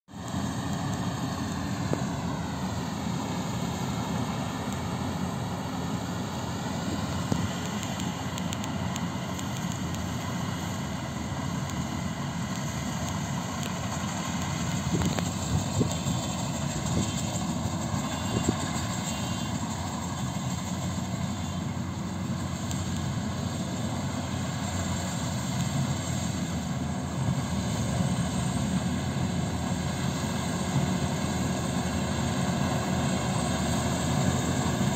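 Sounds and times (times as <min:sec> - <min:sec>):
combine harvester engine drone: 0:00.1 - 0:34.9
high machine whine: 0:00.1 - 0:34.9.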